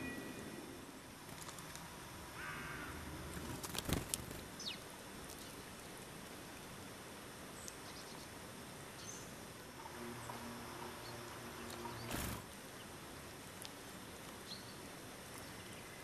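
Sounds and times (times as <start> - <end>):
steady outdoor hiss: 0.0 - 16.0
small birds calling: 1.4 - 6.6, 7.5 - 13.0.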